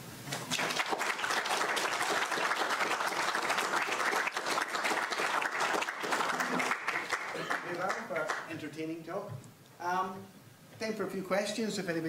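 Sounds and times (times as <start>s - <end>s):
audience applauding: 0.3s - 8.6s.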